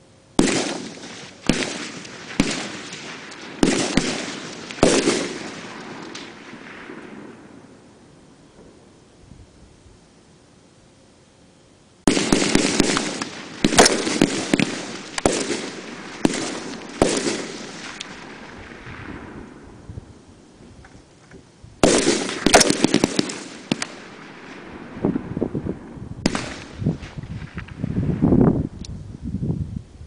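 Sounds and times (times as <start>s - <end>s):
rifle shots echoing: 0.4s - 7.9s, 12.1s - 19.9s, 21.8s - 27.5s.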